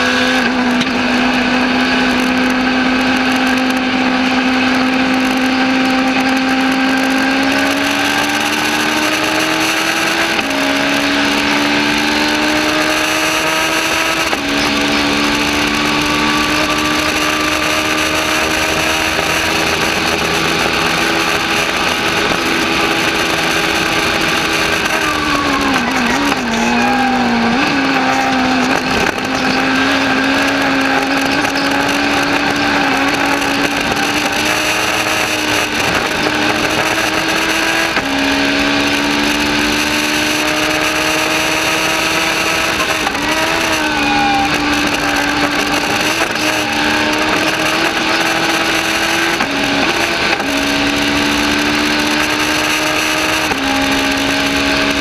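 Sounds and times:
race car engine at high revs: 0.0s - 55.0s
wind and road noise: 0.0s - 55.0s.

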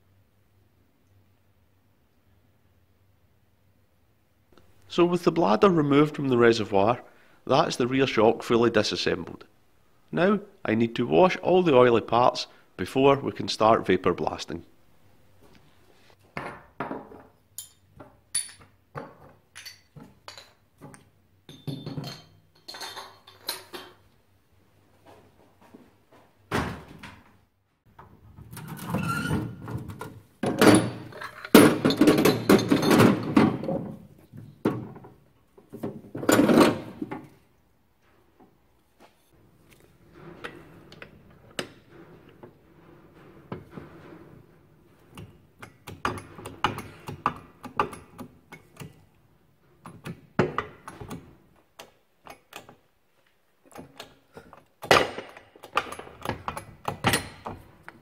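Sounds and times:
metal parts knocking and clinking: 17.6s - 20.6s, 30.4s - 33.7s.

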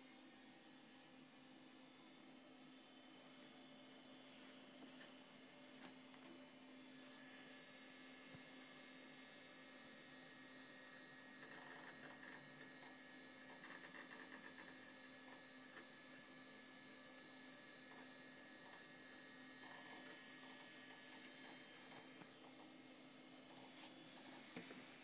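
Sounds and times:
computer hum: 0.0s - 25.0s.

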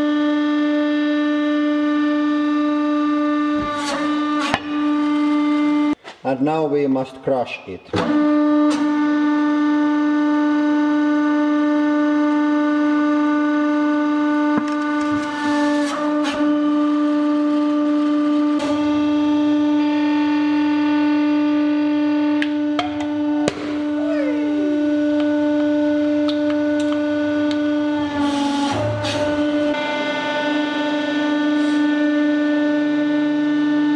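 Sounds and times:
hydraulic pump humming: 0.0s - 6.0s, 7.9s - 33.9s
short falling whine: 8.9s - 33.9s.

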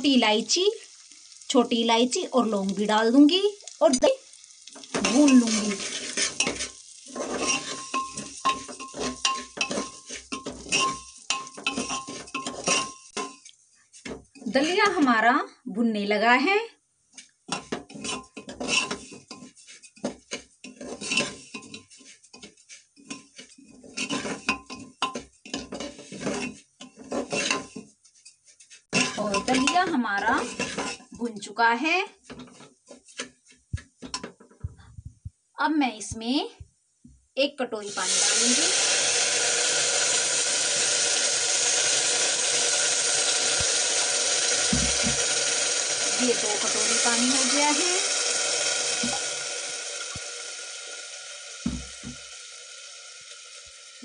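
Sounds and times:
water sizzling in hot pot: 0.0s - 15.4s, 16.0s - 34.4s, 37.8s - 54.0s
metal spoon scraping pot: 4.9s - 14.9s, 17.2s - 31.2s.

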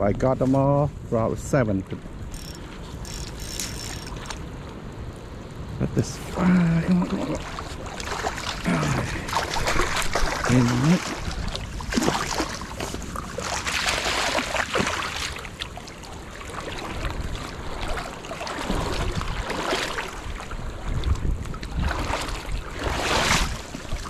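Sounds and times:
river water rushing: 6.2s - 20.3s.

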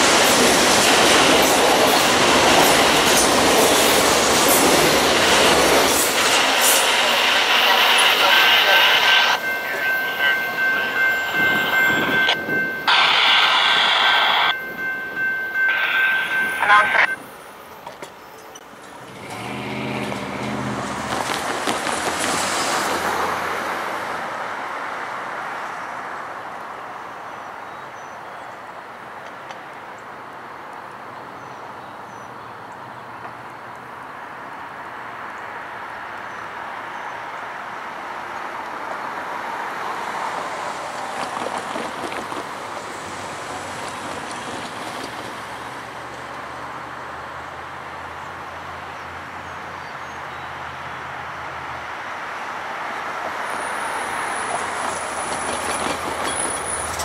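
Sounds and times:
vehicles passing by: 0.0s - 27.7s, 42.4s - 57.0s
steady traffic hiss: 4.0s - 11.3s, 12.8s - 14.6s, 15.6s - 18.9s.

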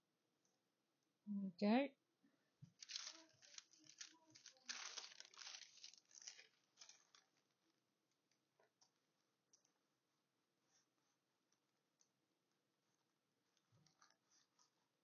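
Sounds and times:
paper and fabric rustling: 2.6s - 9.8s, 12.5s - 15.0s.

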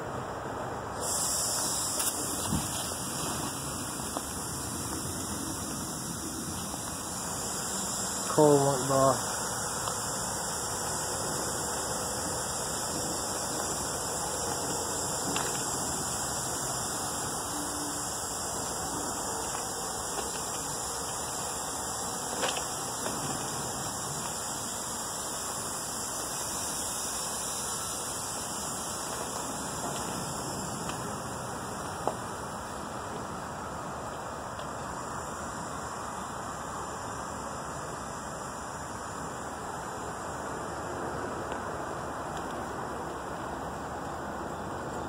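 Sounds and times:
steady background hiss: 0.0s - 45.0s.

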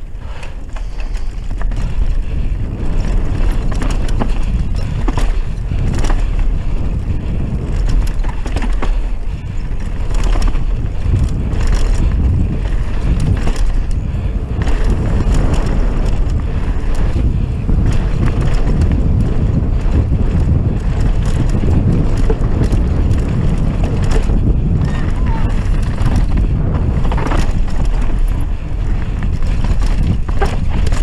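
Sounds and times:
bike rattling over bumps: 0.0s - 31.0s
tyres rumbling on dirt: 0.0s - 31.0s
wind buffeting microphone: 0.0s - 31.0s.

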